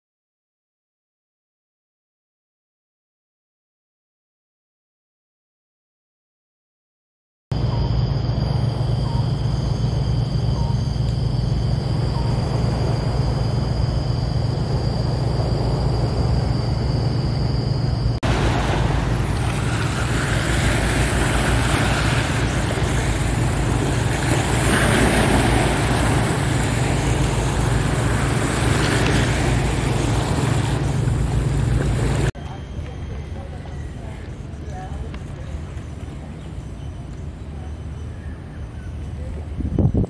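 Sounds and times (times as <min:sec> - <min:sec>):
low rumble: 0:07.5 - 0:36.2
faint high whine: 0:07.5 - 0:40.0
sea waves washing over rocks: 0:18.2 - 0:32.3.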